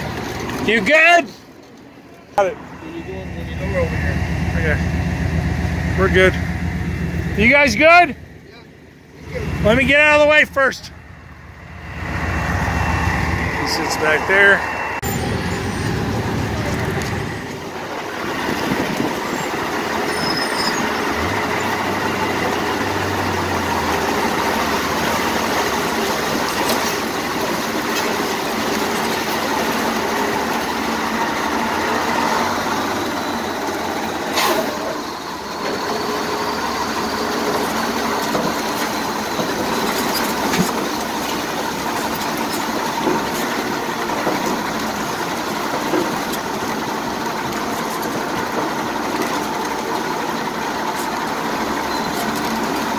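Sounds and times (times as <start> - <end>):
diesel truck engine running: 0.0 - 52.9
tyres splashing through mud: 11.7 - 52.9.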